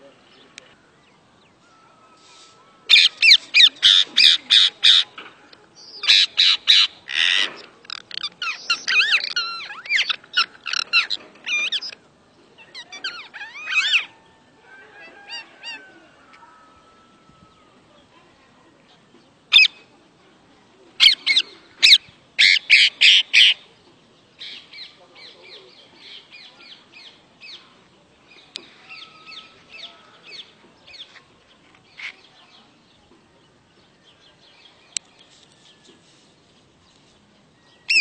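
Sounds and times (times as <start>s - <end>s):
parakeets screeching: 2.9s - 5.1s, 6.0s - 12.0s, 12.8s - 14.1s, 21.0s - 23.5s.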